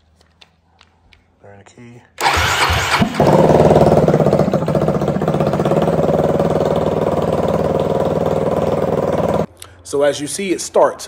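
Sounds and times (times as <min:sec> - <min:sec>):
engine cranking and idling: 0:02.2 - 0:09.5.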